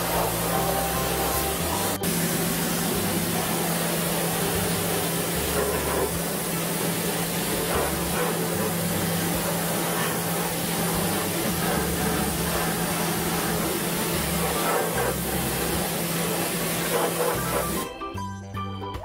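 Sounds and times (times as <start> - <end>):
pressure washer spraying water: 0.0 - 17.9.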